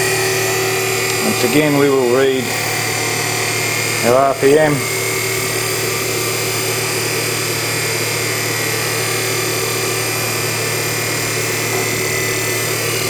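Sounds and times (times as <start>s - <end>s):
electric motor running: 0.0s - 13.0s
wire rope dragging on pulley: 1.2s - 2.5s.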